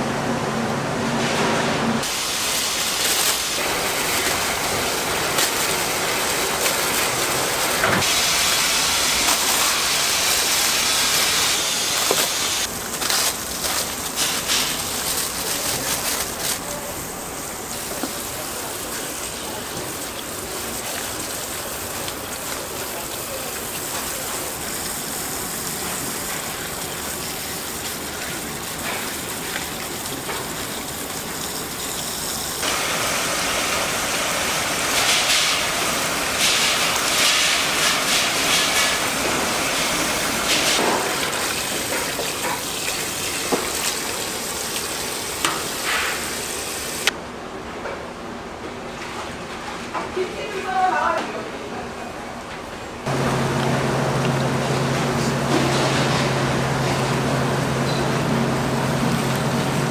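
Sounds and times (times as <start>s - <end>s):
water spray splashing on grapes: 2.0s - 17.0s, 17.7s - 47.1s.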